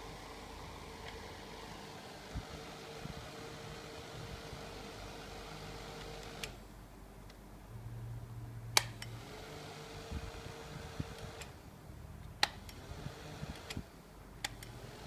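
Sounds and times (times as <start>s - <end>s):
desktop fan motor whirring: 0.0s - 6.6s, 8.8s - 11.6s, 12.4s - 15.0s
fan push button clicks: 8.8s - 9.1s, 12.3s - 12.8s.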